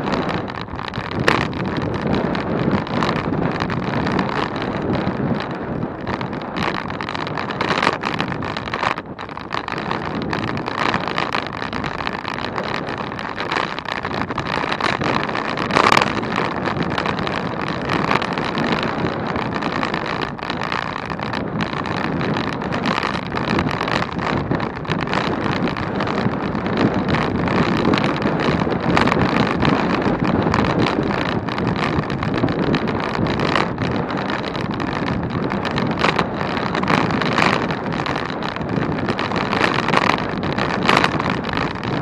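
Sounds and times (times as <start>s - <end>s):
wind rushing over microphone: 0.0s - 42.0s.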